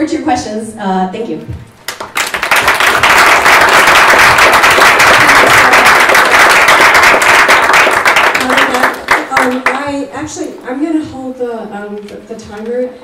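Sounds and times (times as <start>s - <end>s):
small audience applauding: 1.9s - 9.8s.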